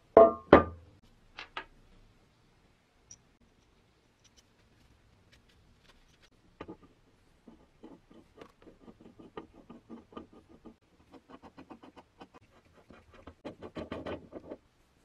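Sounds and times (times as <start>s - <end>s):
screw thread clicking and scraping: 5.3s - 14.6s.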